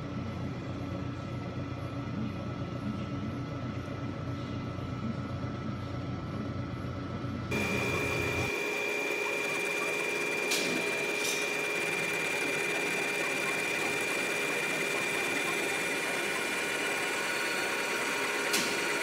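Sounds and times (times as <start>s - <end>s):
milling machine whine: 7.5s - 19.0s.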